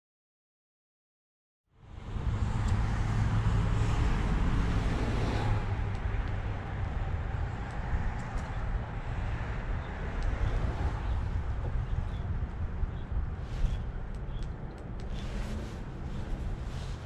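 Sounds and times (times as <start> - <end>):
low outdoor rumble: 1.8 - 17.0
faint clicks: 14.1 - 15.2.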